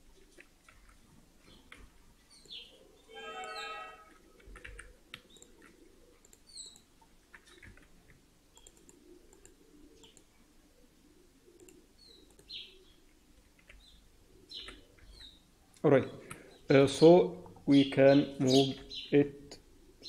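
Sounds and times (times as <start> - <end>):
small birds chirping: 0.0 - 20.0
computer mouse clicks: 4.4 - 10.3, 11.5 - 12.6.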